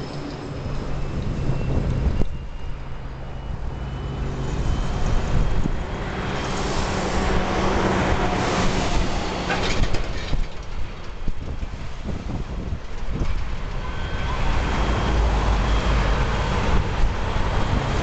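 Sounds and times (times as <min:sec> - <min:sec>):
broad rushing sound: 0:03.7 - 0:09.6.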